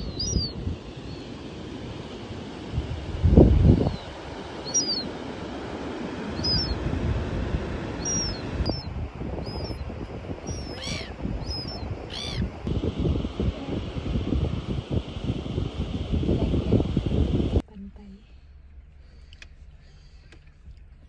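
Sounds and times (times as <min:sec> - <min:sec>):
fuller bird calls: 0:00.0 - 0:01.3, 0:03.8 - 0:05.1, 0:06.3 - 0:06.8, 0:08.0 - 0:09.8, 0:10.4 - 0:12.5
birds chirping: 0:00.0 - 0:01.4, 0:03.8 - 0:05.2, 0:06.3 - 0:06.8, 0:08.0 - 0:12.7
wind buffeting microphone: 0:00.0 - 0:17.6.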